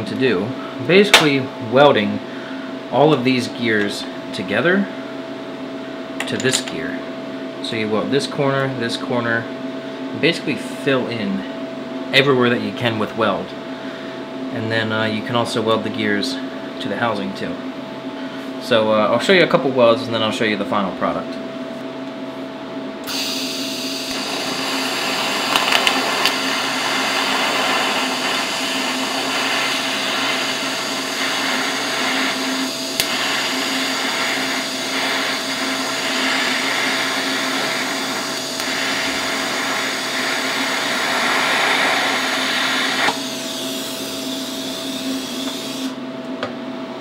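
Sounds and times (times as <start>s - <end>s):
welding arc hissing: 23.0s - 46.0s.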